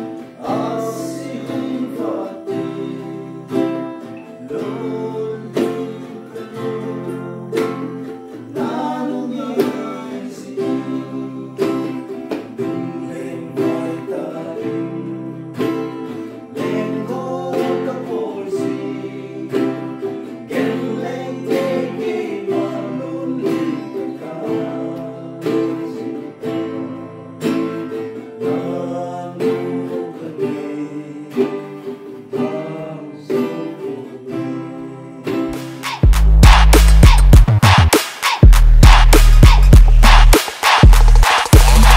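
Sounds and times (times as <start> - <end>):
acoustic guitar strumming: 0.0 - 41.9
person singing: 0.0 - 41.9
ukulele strumming: 0.0 - 41.9
hand drum beat: 35.6 - 41.9.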